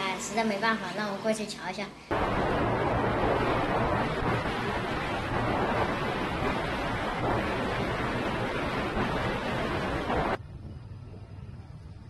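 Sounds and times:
wind rushing over microphone: 2.1 - 11.3.

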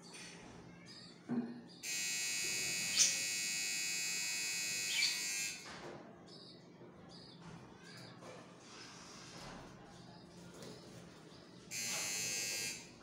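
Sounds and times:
loud steady electric buzz: 1.8 - 5.7, 11.7 - 13.0.

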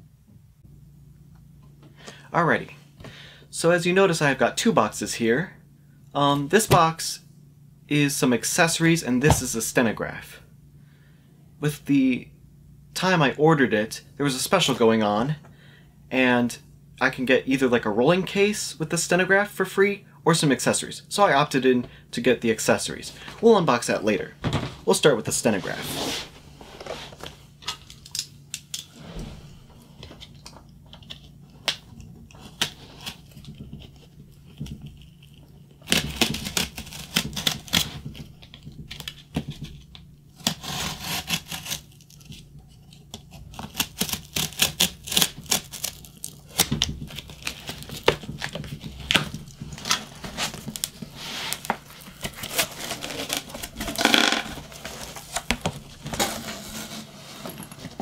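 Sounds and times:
faint steady hum: 0.0 - 58.0
packing tape tearing: 34.9 - 38.2, 40.4 - 57.1
cardboard rustling and clicking: 41.7 - 58.0.

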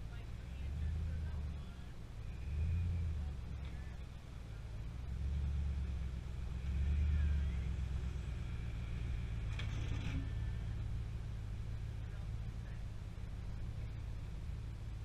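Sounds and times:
truck engine low rumble: 0.0 - 15.0
short clatter: 9.4 - 10.5.

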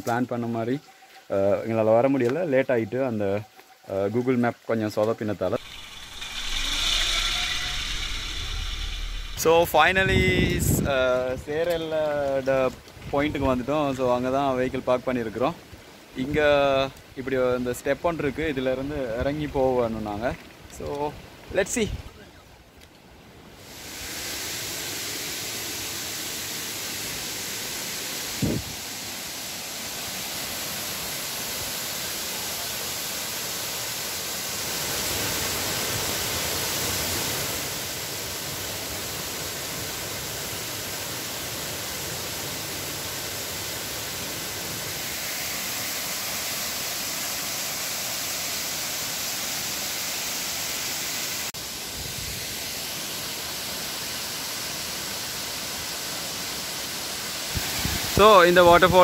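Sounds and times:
waterfall rushing: 5.5 - 10.4, 23.6 - 51.5.

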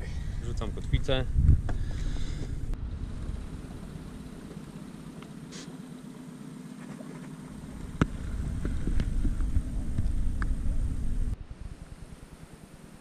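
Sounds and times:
low steady hum: 0.0 - 13.0
rumbling on microphone: 6.9 - 12.8.

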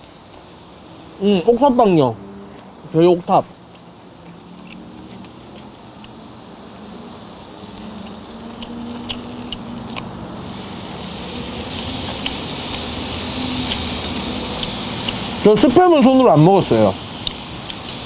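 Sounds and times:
meat sizzling on a grill pan: 0.0 - 18.0
sharp pops and clicks: 3.6 - 6.2, 7.7 - 10.2, 11.7 - 12.9, 13.6 - 15.4, 17.1 - 18.0.

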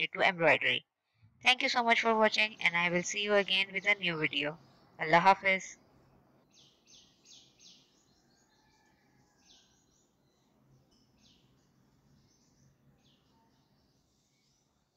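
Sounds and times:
faint bird chirps: 6.5 - 14.9.

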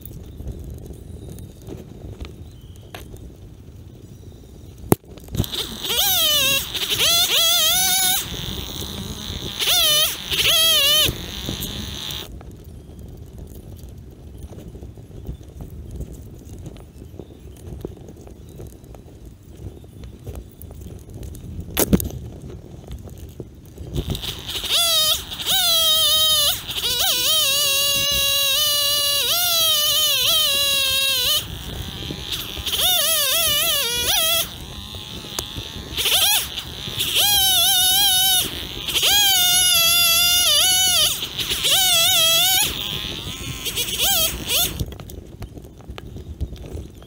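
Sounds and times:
kazoo buzzing: 5.3 - 12.3, 24.0 - 44.9.

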